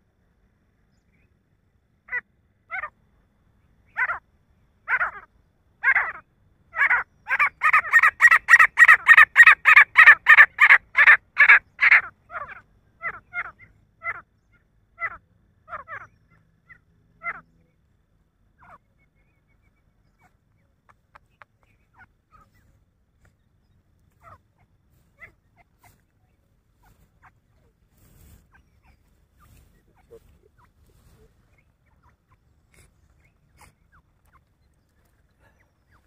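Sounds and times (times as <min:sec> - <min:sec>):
francolin harsh repeated calls: 0:03.8 - 0:17.5.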